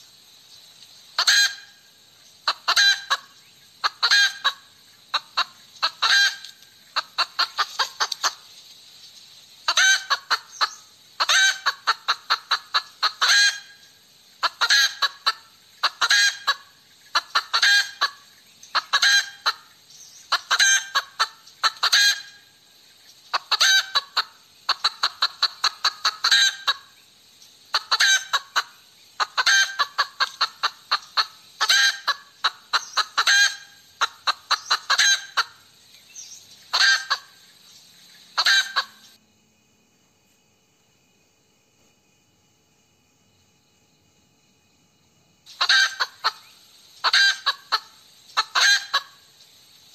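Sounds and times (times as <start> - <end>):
hen cackling: 1.2 - 8.5, 9.6 - 22.6, 23.3 - 27.0, 27.6 - 35.8, 36.6 - 37.5, 38.1 - 39.2, 45.5 - 49.4.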